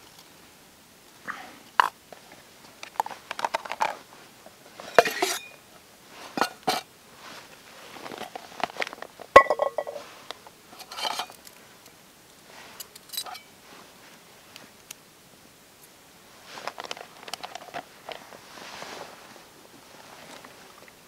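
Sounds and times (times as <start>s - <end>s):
metal cookware clinking and clattering: 4.9s - 5.6s, 9.4s - 10.0s, 10.8s - 11.4s, 12.8s - 13.5s.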